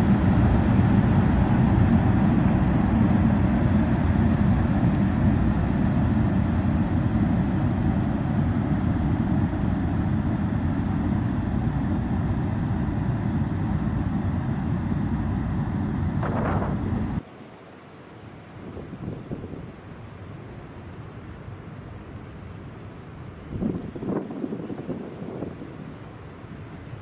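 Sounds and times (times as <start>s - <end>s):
electric locomotive rumbling: 0.0s - 17.2s.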